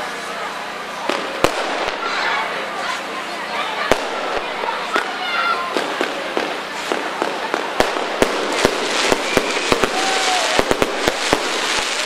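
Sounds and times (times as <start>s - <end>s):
firework shells bursting: 3.9s - 12.0s.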